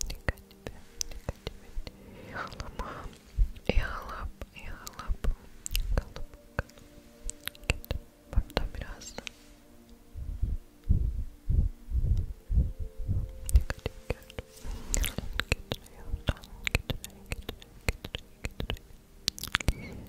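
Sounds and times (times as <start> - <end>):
soft low thumps: 0.0 - 6.5, 10.0 - 14.0
person whispering: 0.0 - 11.1, 13.1 - 20.0.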